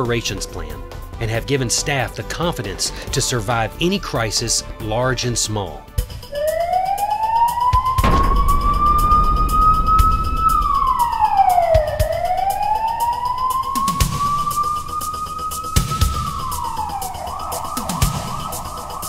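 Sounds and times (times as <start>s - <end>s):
emergency vehicle siren wailing: 6.0s - 19.0s.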